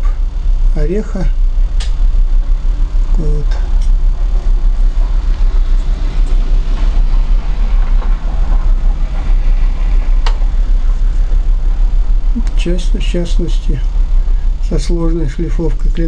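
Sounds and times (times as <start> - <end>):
loud low rumble: 0.0 - 16.0
sharp click: 1.8 - 2.0.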